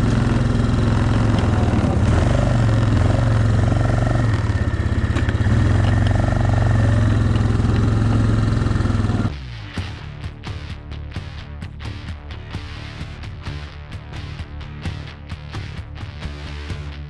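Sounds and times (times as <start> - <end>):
atv engine running: 0.0 - 9.4.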